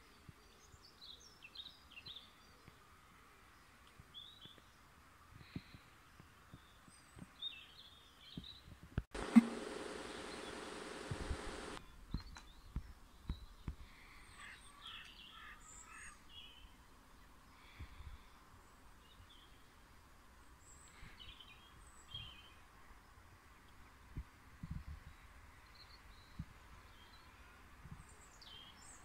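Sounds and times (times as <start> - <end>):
songbirds chirping: 0.0 - 29.0
loud rushing noise with hum: 9.2 - 11.8.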